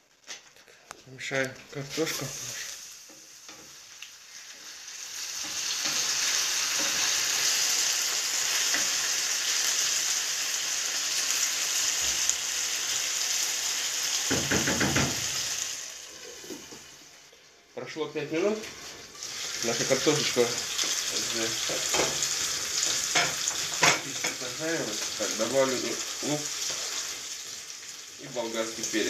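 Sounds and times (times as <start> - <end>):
potatoes sizzling in oil: 1.1 - 17.6, 18.2 - 29.0.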